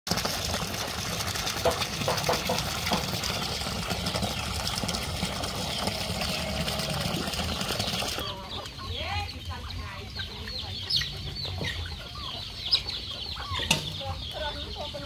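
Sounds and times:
water pouring into plastic basin: 0.1 - 8.2.

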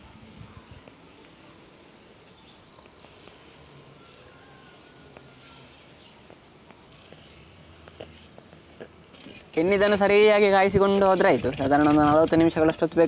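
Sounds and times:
sugar pouring with soft hiss: 0.0 - 9.0
high insect drone: 0.0 - 10.1.

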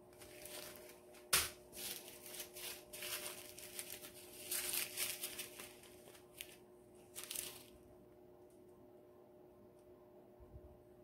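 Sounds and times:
faint steady hum: 0.0 - 11.0
plastic bags crinkling: 0.1 - 7.8.

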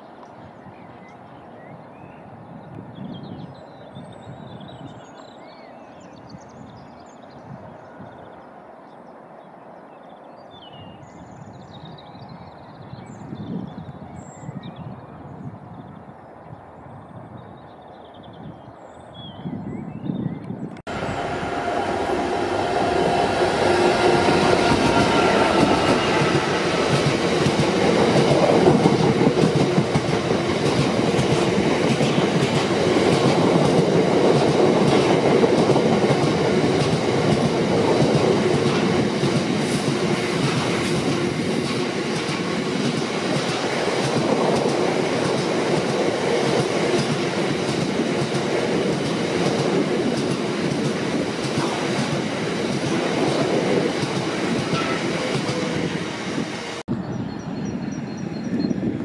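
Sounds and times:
train wheels rumbling and clacking: 20.9 - 56.8
diesel locomotive engine: 20.9 - 59.0.

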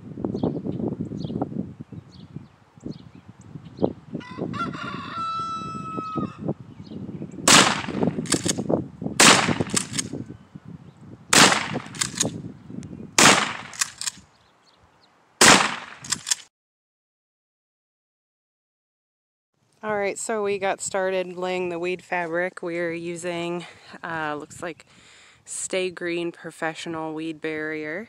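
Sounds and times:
gunshots: 7.5 - 8.6, 9.2 - 10.1, 11.3 - 12.3, 13.2 - 14.2, 15.4 - 16.4
fainter echoing cracks: 13.2 - 14.2.

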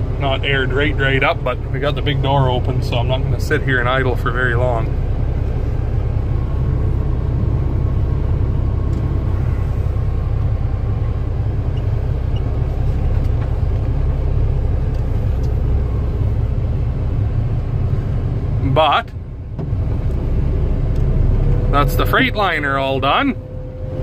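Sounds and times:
diesel truck engine idling: 0.0 - 24.0.

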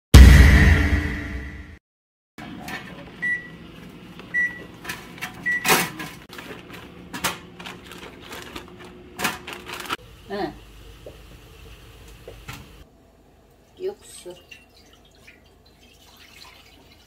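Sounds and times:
plastic bag handled: 6.3 - 10.0.

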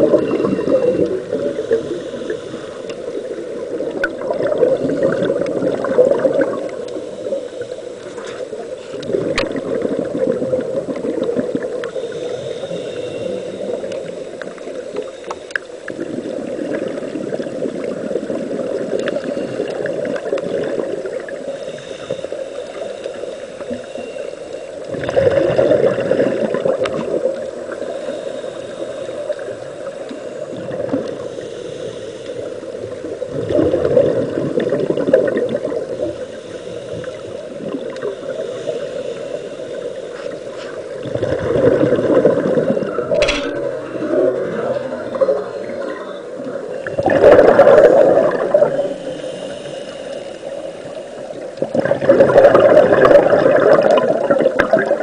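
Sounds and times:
underwater rush of water: 0.0 - 55.0.

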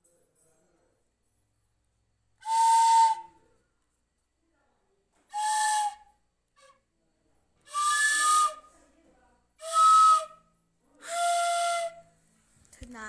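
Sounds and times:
breathy bamboo flute notes: 2.4 - 3.4, 5.3 - 6.8, 7.6 - 8.7, 11.0 - 12.1.

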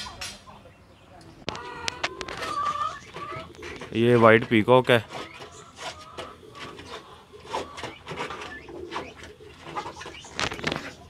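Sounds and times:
birds calling: 0.0 - 11.0
pigeons cooing: 1.4 - 11.0.

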